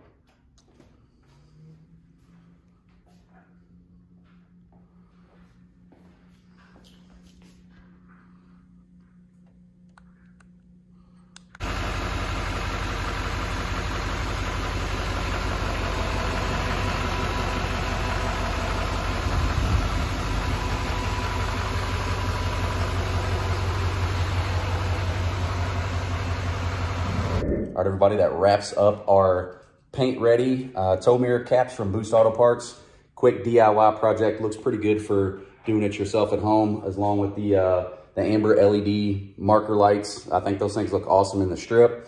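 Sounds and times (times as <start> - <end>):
diesel engine idling: 11.6 - 27.4.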